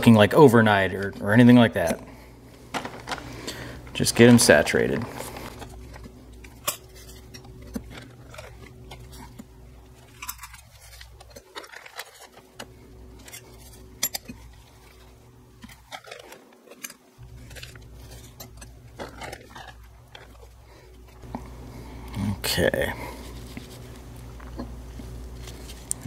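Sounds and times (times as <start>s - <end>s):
plastic bag crinkling: 2.6s - 21.3s.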